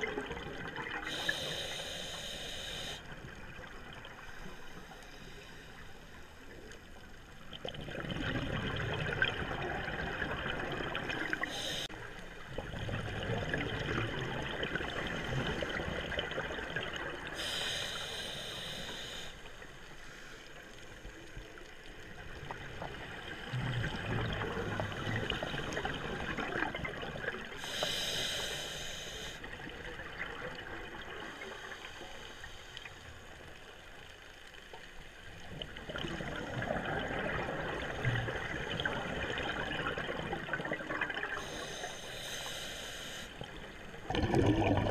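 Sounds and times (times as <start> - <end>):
hissing regulator inhalations: 1.0 - 3.1, 11.4 - 11.9, 17.4 - 20.4, 27.6 - 29.5, 41.4 - 43.6
bubbling exhalations underwater: 44.0 - 44.9.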